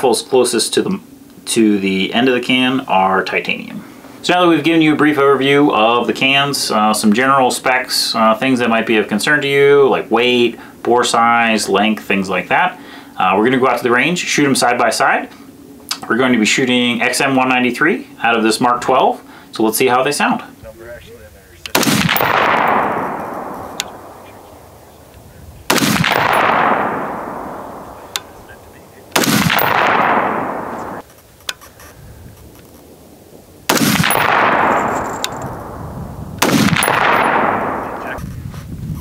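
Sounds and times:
rifle shots with echo: 0:21.7 - 0:31.0, 0:33.7 - 0:38.2.

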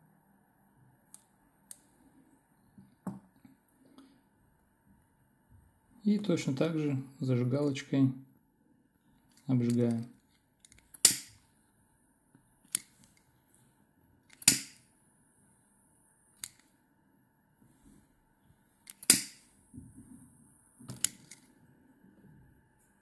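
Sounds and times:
lighter striking: 0:14.4 - 0:14.9, 0:19.0 - 0:19.5.

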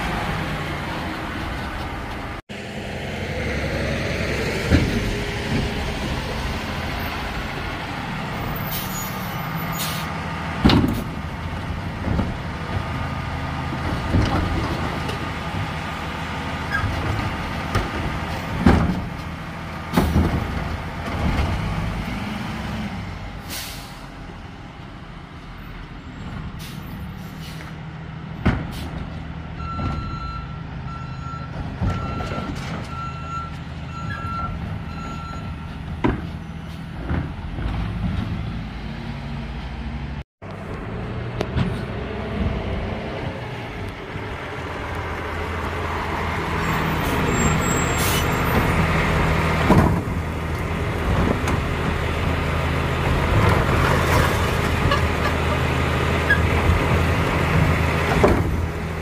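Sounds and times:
air brake hisses: 0:23.4 - 0:24.1
reversing alarm beeping: 0:29.6 - 0:35.6.

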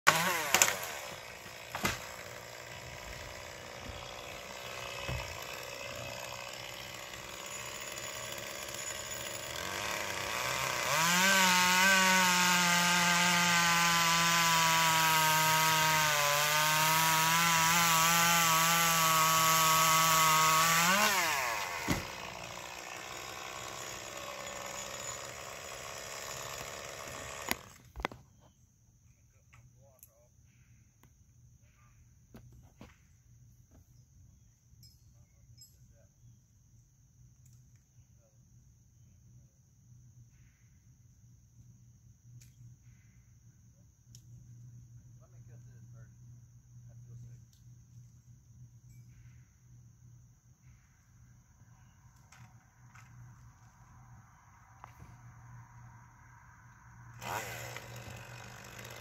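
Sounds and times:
chainsaw revving: 0:00.1 - 0:27.8, 0:57.1 - 0:59.0.

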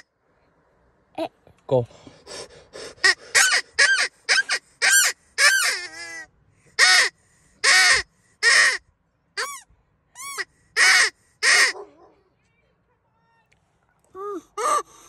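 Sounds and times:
predator call blasts: 0:03.0 - 0:08.8, 0:10.2 - 0:11.8.

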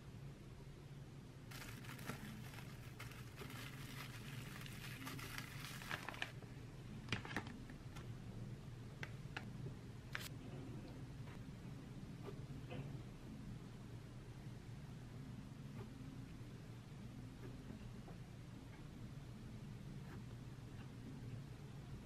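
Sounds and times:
plastic wrap crinkling: 0:01.5 - 0:06.4, 0:07.0 - 0:07.6.

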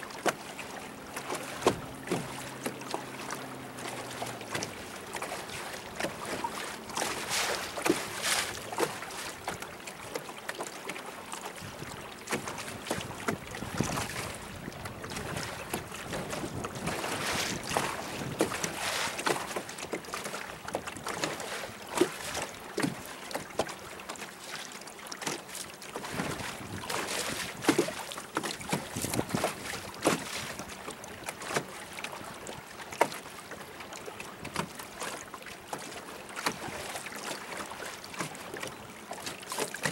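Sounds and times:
water slapping boat hull: 0:00.0 - 0:39.9
wind buffeting microphone: 0:12.8 - 0:18.8, 0:28.8 - 0:29.8.

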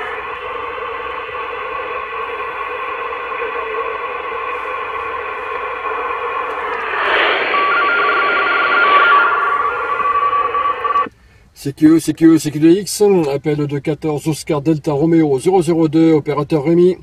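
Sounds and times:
broken radio tone: 0:00.0 - 0:11.1
radio band hiss: 0:00.0 - 0:11.1
heterodyne whistle: 0:00.0 - 0:11.2.

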